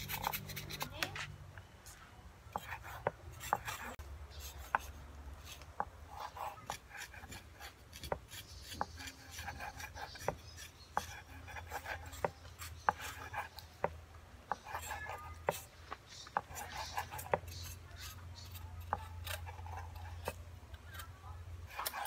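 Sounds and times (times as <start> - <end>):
knife slicing raw meat: 3.4 - 13.6.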